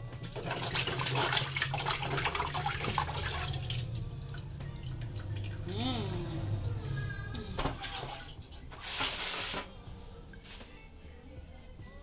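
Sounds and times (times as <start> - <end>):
fish rinsed under running water: 0.0 - 6.6, 7.6 - 9.7.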